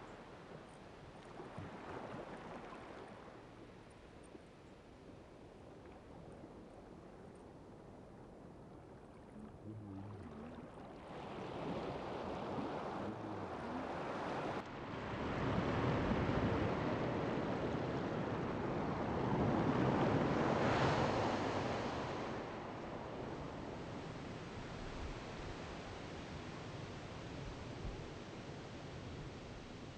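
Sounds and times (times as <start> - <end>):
wind and sea rushing: 9.2 - 29.9.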